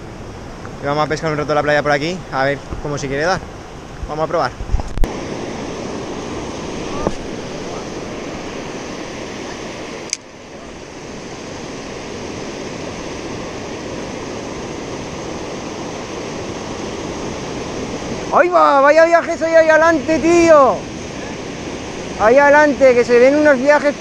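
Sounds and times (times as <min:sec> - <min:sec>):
waves washing up a beach: 0:00.0 - 0:24.0
sharp click: 0:10.0 - 0:10.3.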